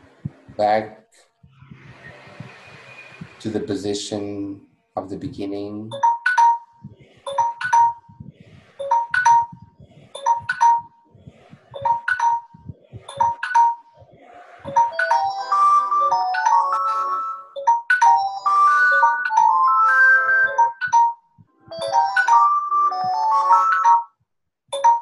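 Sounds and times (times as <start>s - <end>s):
chiming ringtone tune: 5.9s - 8.2s, 8.8s - 11.0s, 11.8s - 14.0s, 14.7s - 25.0s.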